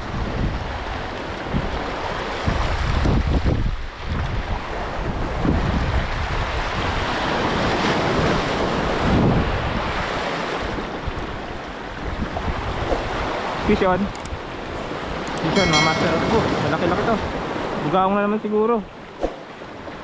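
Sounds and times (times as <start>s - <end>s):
waves washing over stones: 0.0s - 15.3s
wind buffeting microphone: 0.0s - 17.9s.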